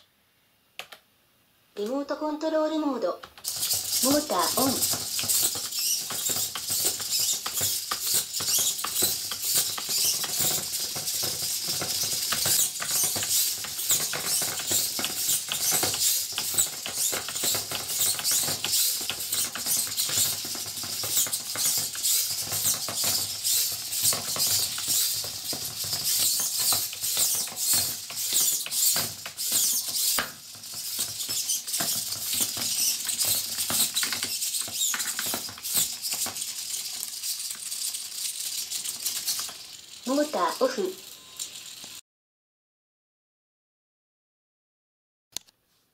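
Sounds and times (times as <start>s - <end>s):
plastic limbs tapping on wooden floor: 3.2s - 40.7s
servo motors whirring jerkily: 3.4s - 38.2s.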